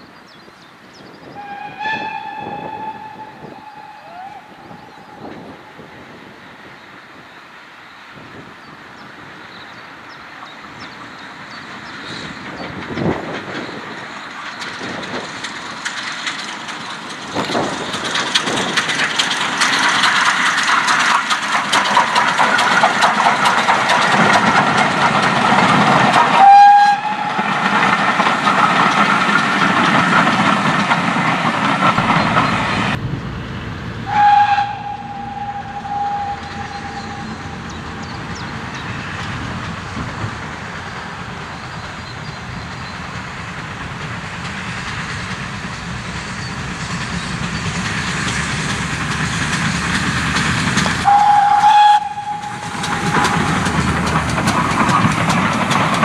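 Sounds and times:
steam train passing: 0.0 - 56.0
steam whistle blast: 1.4 - 5.3, 26.4 - 27.5, 34.1 - 37.6, 51.0 - 53.4
rail clatter: 8.3 - 56.0.

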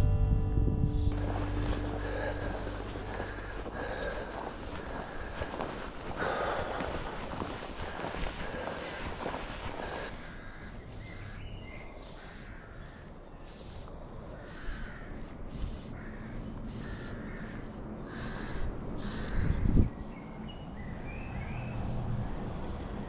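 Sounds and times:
bird calling: 1.0 - 19.6
outdoor rumble: 1.1 - 10.1.

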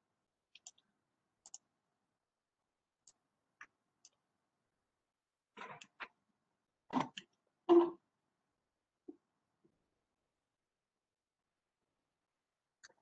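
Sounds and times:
faint computer mouse clicks: 1.4 - 1.6.

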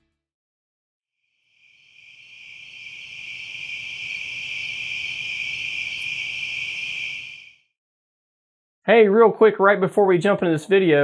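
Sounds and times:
high-pitched insect chorus: 1.4 - 7.6.

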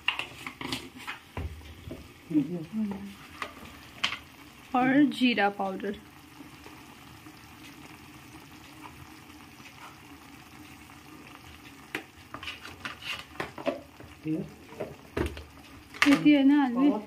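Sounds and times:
spatula scraping against pan: 0.0 - 1.3, 12.3 - 13.7
chicken sizzling in oil: 0.0 - 17.0.

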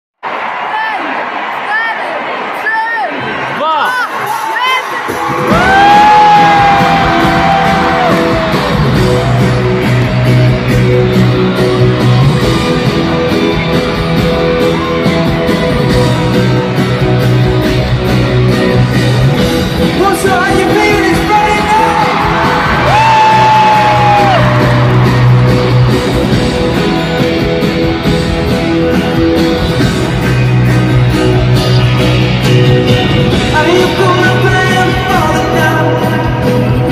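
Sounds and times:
crowd yelling: 0.2 - 35.4
live pop music: 3.7 - 36.9.

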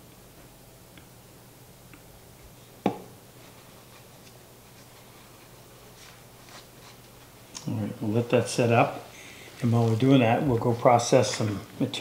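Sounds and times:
low steady hum: 0.0 - 12.0
paper towel rubbing wooden box: 3.4 - 7.1.

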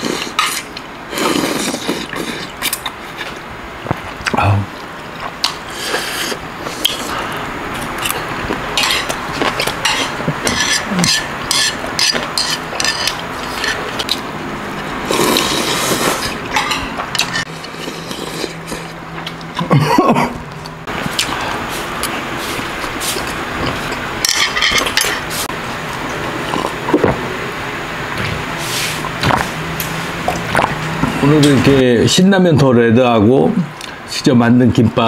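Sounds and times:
slurping noodles: 0.0 - 3.3, 5.5 - 8.2, 15.0 - 16.4, 17.2 - 19.0.

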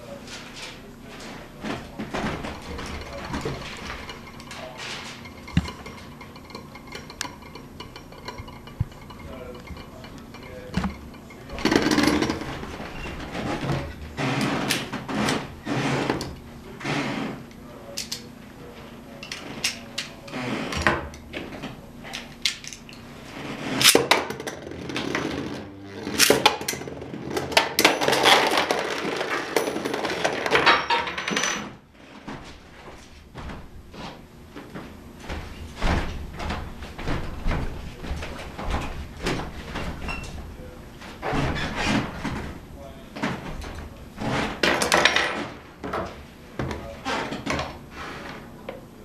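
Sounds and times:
plastic toys clattering: 2.1 - 13.4, 26.2 - 31.7.

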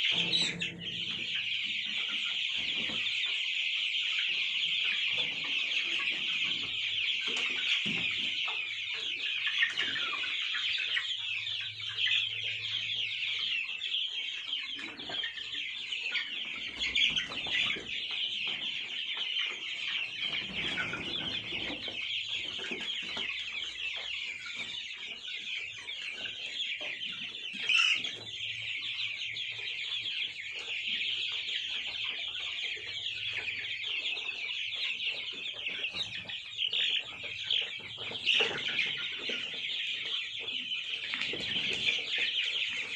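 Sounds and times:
chicks peeping: 0.0 - 42.9.

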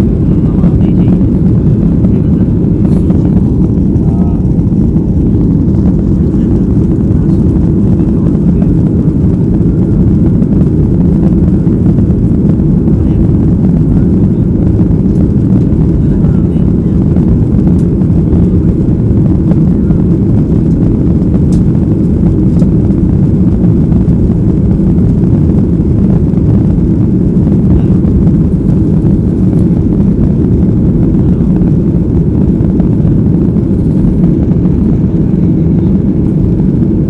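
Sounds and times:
jet engine roar in cabin: 0.0 - 37.0.

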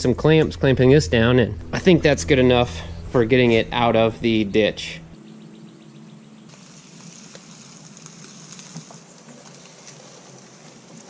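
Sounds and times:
low steady hum: 0.0 - 7.8.

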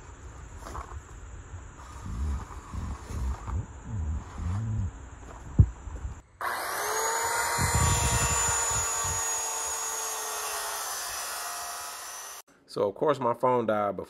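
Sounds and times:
low rumble: 1.7 - 6.2
circular saw cutting board: 6.4 - 12.4.

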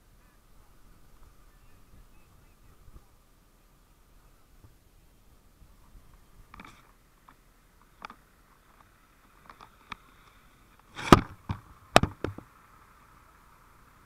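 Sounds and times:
faint steady hiss: 0.0 - 14.0
knocks and thumps on camera: 11.0 - 12.5.

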